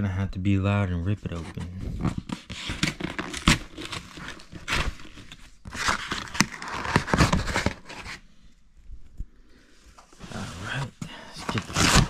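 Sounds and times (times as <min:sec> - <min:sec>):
cardboard box tearing open: 0:02.2 - 0:08.2, 0:11.4 - 0:12.0.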